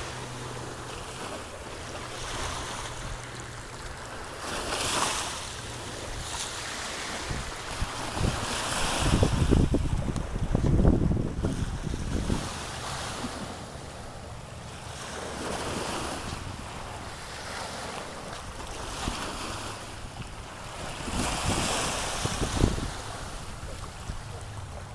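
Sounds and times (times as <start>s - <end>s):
surf waves breaking: 0.0s - 24.9s
wind rumbling on microphone: 5.7s - 14.4s, 15.6s - 24.9s.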